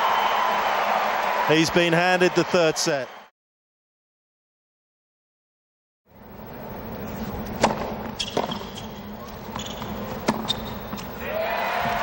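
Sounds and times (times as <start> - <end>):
tennis ball hit by rackets: 7.6 - 8.6
hushed stadium crowd: 11.2 - 12.0.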